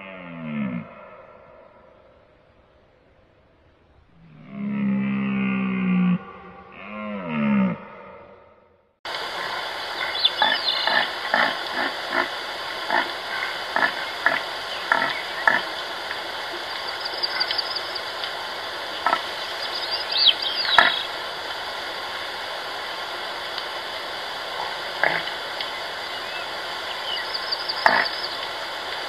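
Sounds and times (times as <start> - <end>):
forest ambience: 0.0 - 29.0
birds chirping: 9.3 - 21.2, 25.2 - 28.6
deer calling: 10.0 - 12.2.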